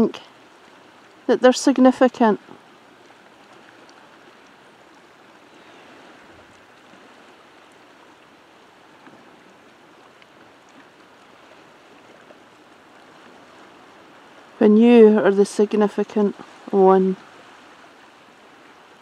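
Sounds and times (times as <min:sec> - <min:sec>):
small ticks of water: 0:02.4 - 0:14.4
water lapping among rocks: 0:02.4 - 0:19.0.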